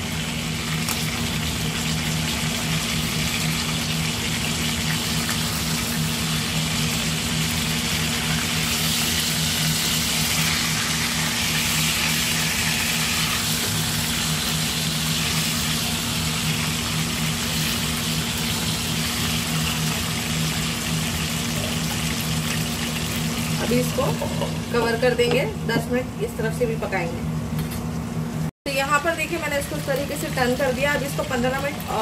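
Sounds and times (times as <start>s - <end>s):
oil sizzling in a pan: 0.0s - 25.1s.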